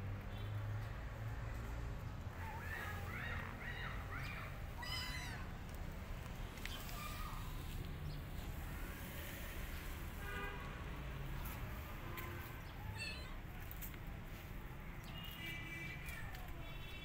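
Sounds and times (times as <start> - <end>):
kitten meowing: 4.3 - 5.4, 12.8 - 13.4.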